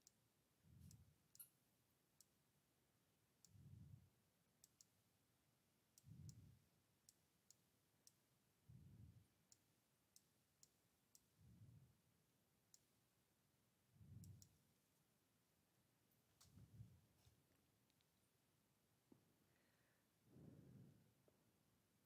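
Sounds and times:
computer mouse clicks: 14.2s - 14.6s.

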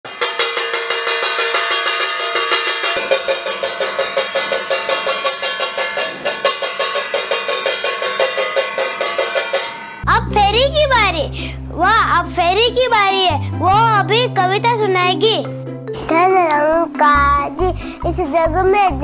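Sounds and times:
spoon beating ringing steel plate: 0.1s - 10.3s.

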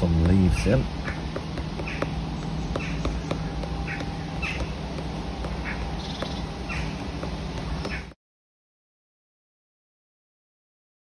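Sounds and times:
charcoal scratching on paper: 0.0s - 8.1s
low steady hum: 0.0s - 8.2s.

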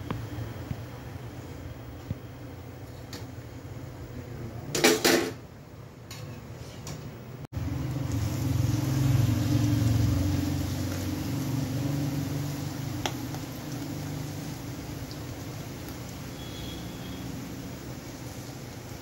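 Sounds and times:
dough sizzling in hot oil: 7.6s - 19.0s.

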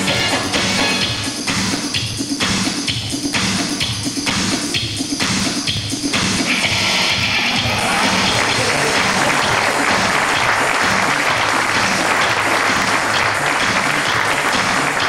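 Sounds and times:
stage music: 0.0s - 15.0s
audience applauding: 7.5s - 15.0s.

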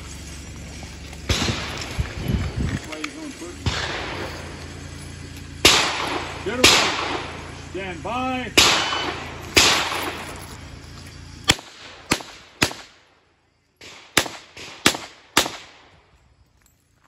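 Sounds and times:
revolver shots echoing: 1.2s - 2.2s, 3.6s - 7.7s, 8.5s - 10.5s
sharp handgun shots: 1.3s - 2.2s, 3.6s - 4.8s, 5.5s - 7.6s, 8.5s - 10.4s, 11.4s - 13.1s, 13.8s - 15.9s.

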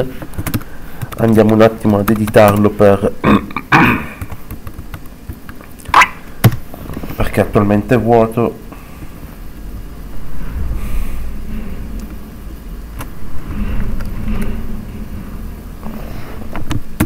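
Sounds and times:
low rumbling noise: 6.2s - 17.0s.

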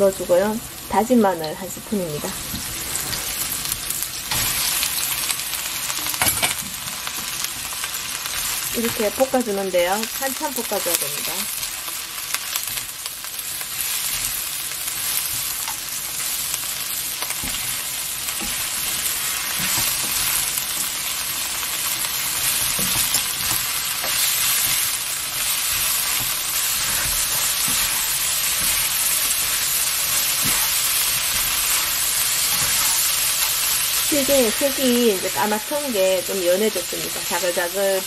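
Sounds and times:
crabs sizzling in oil: 0.0s - 38.0s
spatula clicking and scraping: 17.2s - 21.0s, 21.8s - 34.1s.

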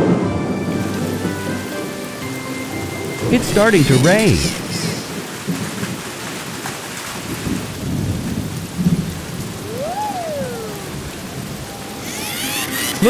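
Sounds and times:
steady rain: 0.0s - 13.0s
low thunder rumbling: 7.2s - 12.0s.

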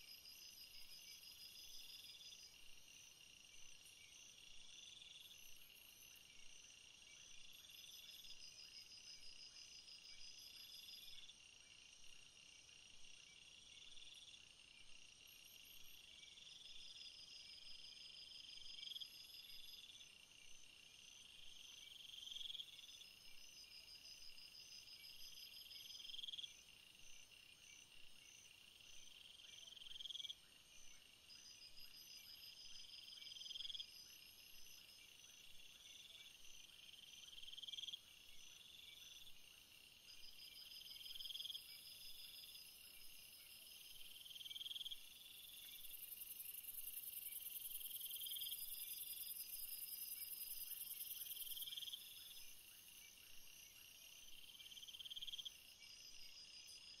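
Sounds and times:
crickets and insects chorus: 0.0s - 57.0s.

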